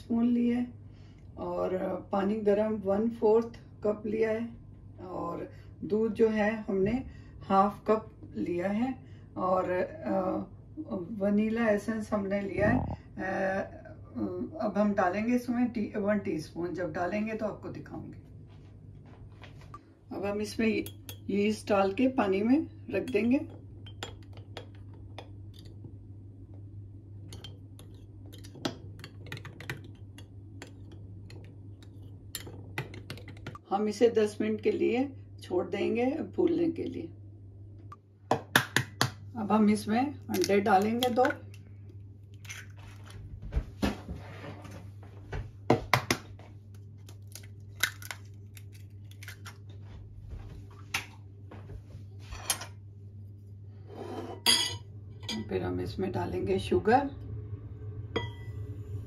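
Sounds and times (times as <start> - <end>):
metal spoon clinking in bowl: 20.8 - 21.3, 27.3 - 31.5
egg cracking on ceramic bowl: 47.0 - 49.6.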